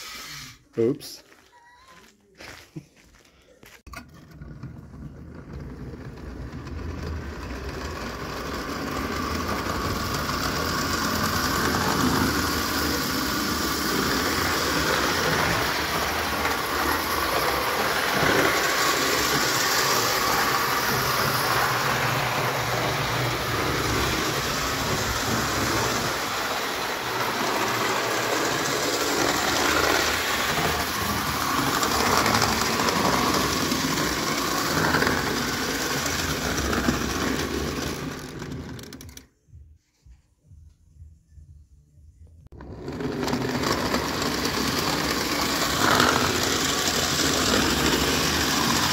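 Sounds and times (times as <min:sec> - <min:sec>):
toy train wheels rattling on rails: 0:04.4 - 0:39.2, 0:42.6 - 0:48.9.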